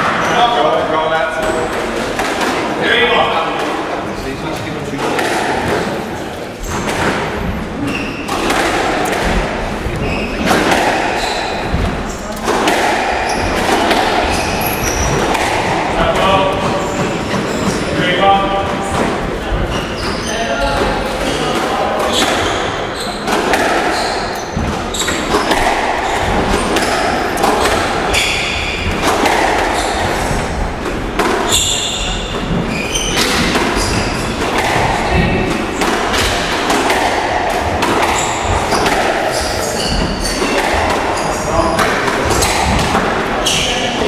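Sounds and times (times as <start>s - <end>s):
squash ball thudding: 0.0s - 44.0s
short high squeaks: 31.5s - 34.4s.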